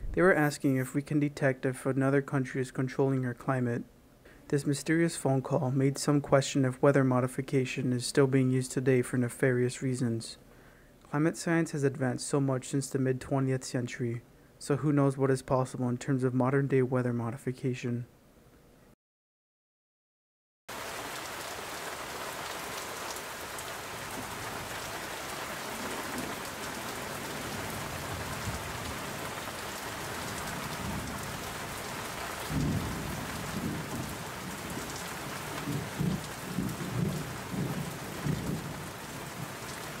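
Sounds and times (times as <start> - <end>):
heavy rain: 20.7 - 40.0
thunder rumbling: 24.0 - 40.0.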